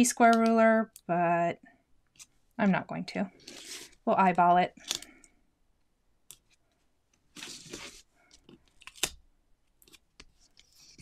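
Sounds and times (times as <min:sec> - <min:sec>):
paper sliding rustle: 0:07.3 - 0:08.1.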